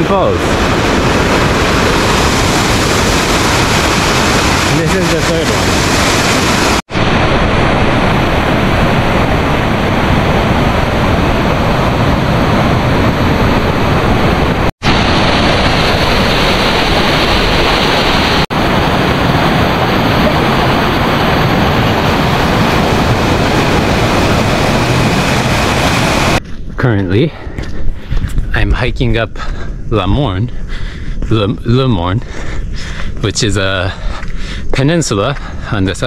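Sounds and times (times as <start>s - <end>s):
waterfall rushing: 0.0s - 26.4s.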